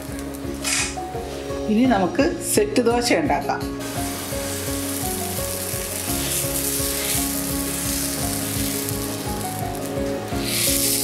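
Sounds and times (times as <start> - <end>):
background music: 0.0 - 11.0
batter sizzling on a pan: 3.8 - 11.0.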